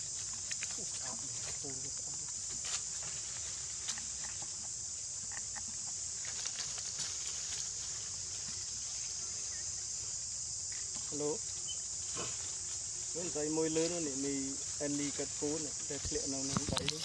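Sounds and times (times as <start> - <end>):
insect chorus drone: 0.0 - 17.0
dry leaves rustling: 6.2 - 10.1.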